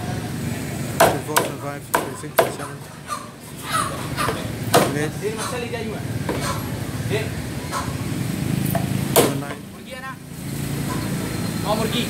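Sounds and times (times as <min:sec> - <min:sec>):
cleaver chopping on wooden block: 0:01.0 - 0:02.7, 0:08.7 - 0:09.6.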